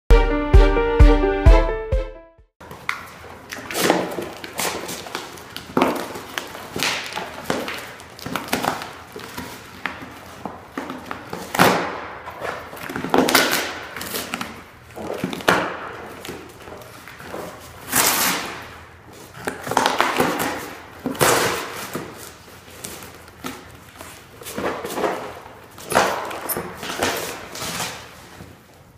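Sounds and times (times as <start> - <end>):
cardboard scraping and tearing: 16.7 - 18.6, 19.8 - 28.4.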